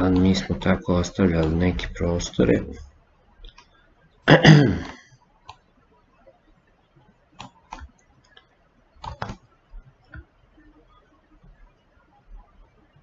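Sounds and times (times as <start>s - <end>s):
computer mouse clicks: 0.0s - 0.4s, 3.4s - 3.8s, 5.1s - 5.7s, 7.4s - 10.7s.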